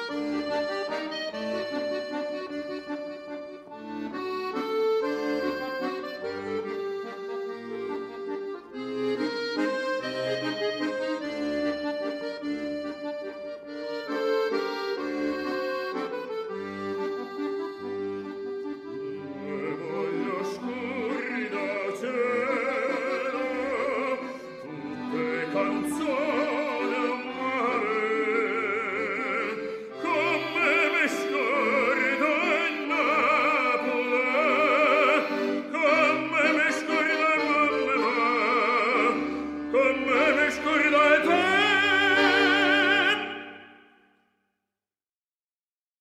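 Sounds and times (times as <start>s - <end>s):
accordion: 0.0s - 44.2s
baritone singing operatically: 19.4s - 43.7s.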